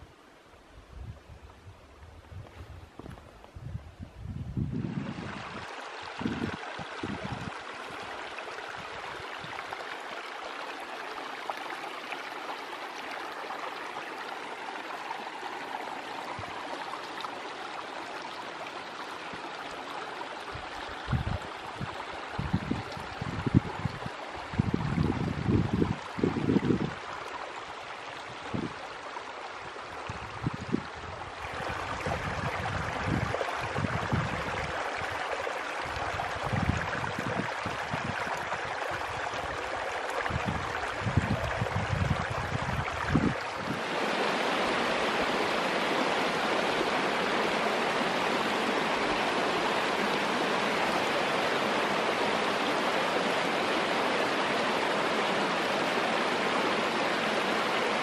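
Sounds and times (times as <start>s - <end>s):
wind gusting on microphone: 0.8s - 7.6s, 20.5s - 27.1s, 29.6s - 35.2s, 35.8s - 54.9s
creek running over stones: 4.5s - 58.0s.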